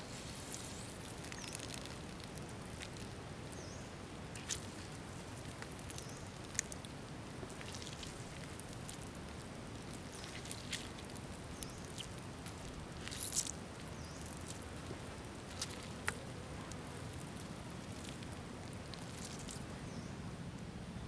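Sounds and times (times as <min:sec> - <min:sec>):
juice dripping onto leaves: 0:00.0 - 0:20.0
wet crackle: 0:00.0 - 0:20.0
fruit squelching in a hand: 0:04.3 - 0:19.7.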